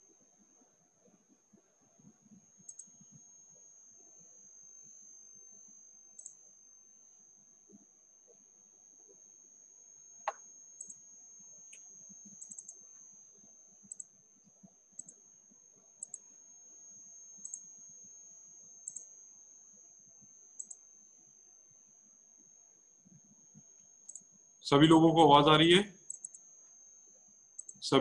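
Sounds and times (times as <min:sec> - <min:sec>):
faint high-pitched whine: 0:00.0 - 0:28.0
computer mouse clicking: 0:02.6 - 0:02.9, 0:12.4 - 0:12.8, 0:13.9 - 0:14.1, 0:15.0 - 0:15.2, 0:20.6 - 0:20.8, 0:26.1 - 0:26.4, 0:27.6 - 0:27.8.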